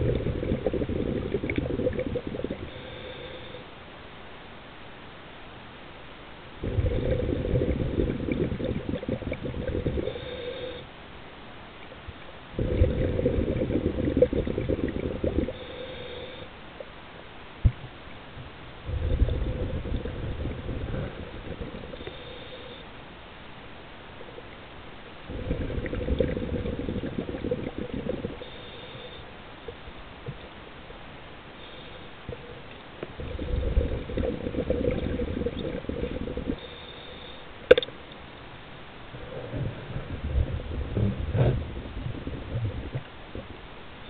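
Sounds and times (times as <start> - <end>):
diver's exhaled bubbles rumbling: 0.0 - 2.8, 6.6 - 10.2, 12.5 - 15.6, 18.8 - 22.0, 25.3 - 28.5, 33.0 - 36.6, 39.2 - 43.6
sharp click: 37.7 - 37.9.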